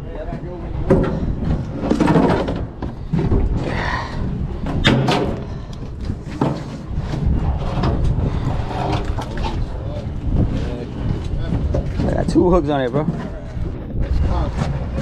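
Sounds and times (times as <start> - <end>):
low rumble: 0.0 - 15.0.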